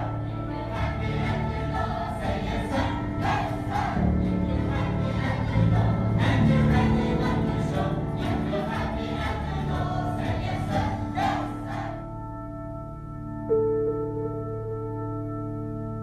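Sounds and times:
group of voices singing: 0:00.0 - 0:12.1
sustained ambient music tones: 0:00.0 - 0:16.0.

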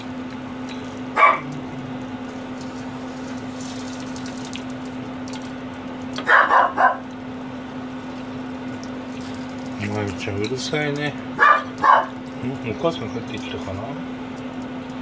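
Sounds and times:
steady low hum: 0:00.0 - 0:15.0
dog barking: 0:01.2 - 0:01.6, 0:06.2 - 0:07.0, 0:11.4 - 0:12.2.

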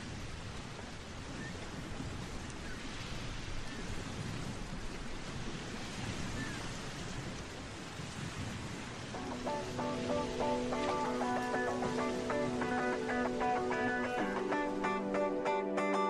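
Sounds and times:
steady rushing noise: 0:09.2 - 0:15.6.

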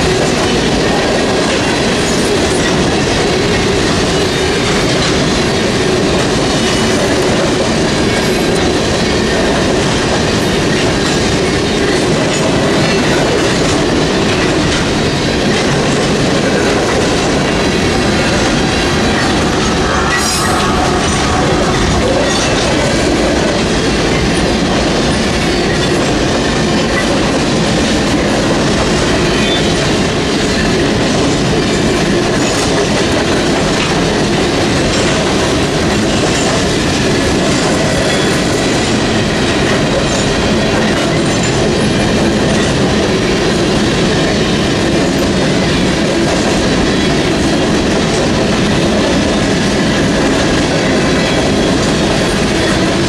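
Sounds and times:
crossing bell ringing: 0:00.0 - 0:44.4
freight train rumbling past: 0:00.0 - 0:53.0
train wheels clickety-clack: 0:00.0 - 0:53.0.

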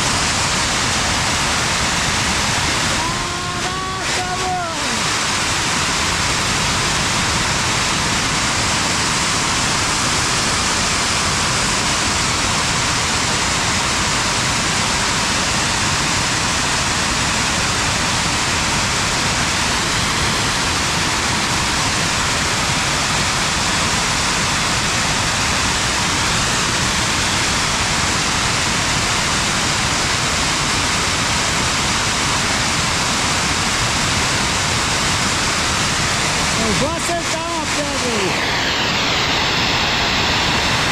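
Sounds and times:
steam jet hissing: 0:00.0 - 0:40.9.

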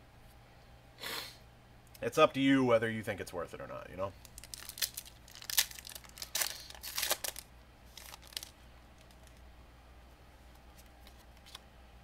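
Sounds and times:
faint room hum: 0:00.0 - 0:12.0
foil wrapper crinkling and tearing: 0:04.2 - 0:09.4.

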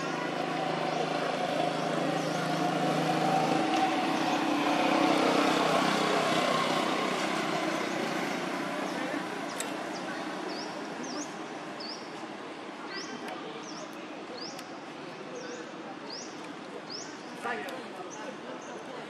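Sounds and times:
vehicle engine passing by: 0:00.0 - 0:11.2.

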